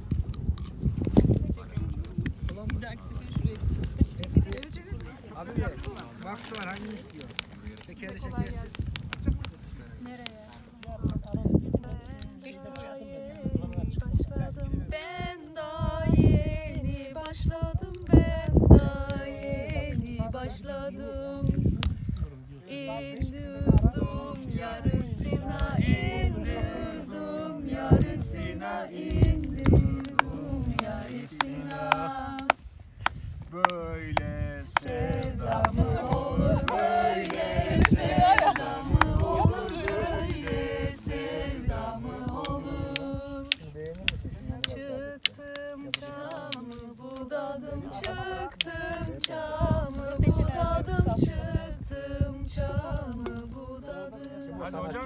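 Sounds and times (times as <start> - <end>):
voices singing unaccompanied: 11.7 - 55.0.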